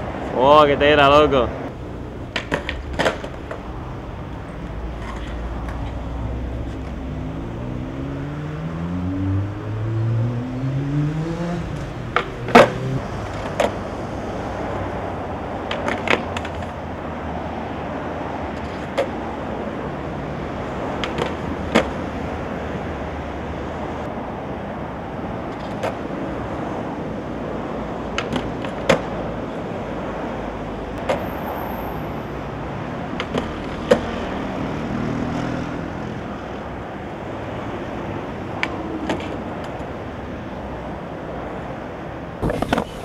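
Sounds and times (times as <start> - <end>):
road traffic: 0.0 - 43.0
skateboard clacks on pavement: 2.2 - 3.7, 4.6 - 6.0, 12.1 - 13.8, 15.6 - 16.8, 18.5 - 19.4, 21.0 - 22.0, 25.5 - 26.2, 28.1 - 29.8, 31.0 - 31.3, 33.1 - 34.2, 38.6 - 40.0, 42.4 - 43.0
car engine revving: 6.0 - 14.6.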